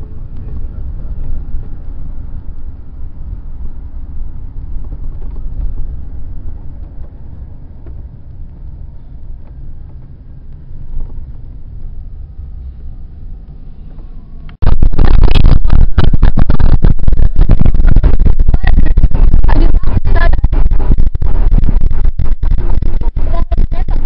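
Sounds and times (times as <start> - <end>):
car road and engine rumble: 0.0 - 23.8
loud distorted sound: 14.6 - 24.0.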